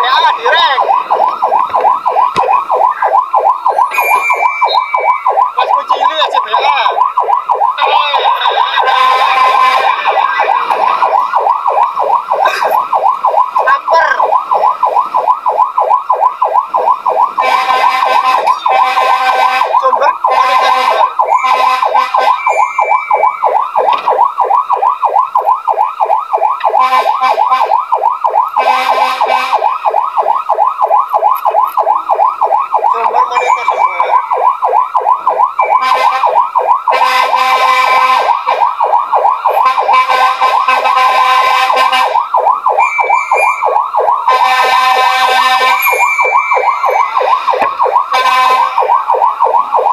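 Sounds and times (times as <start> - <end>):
fire engine siren warbling: 0.0 - 49.9
harsh steady horn tone: 8.8 - 10.0, 17.4 - 22.6, 26.8 - 27.8, 28.6 - 29.7, 35.8 - 38.4, 39.6 - 42.2, 44.3 - 46.0, 48.1 - 48.8.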